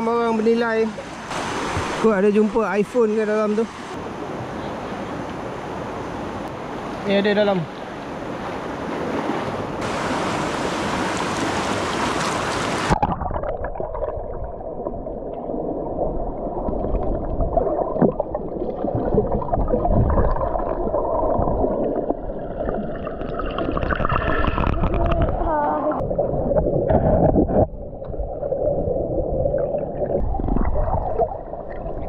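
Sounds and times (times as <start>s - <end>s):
river water rushing and splashing: 0.0s - 13.1s
underwater rumble and gurgling: 12.9s - 32.0s.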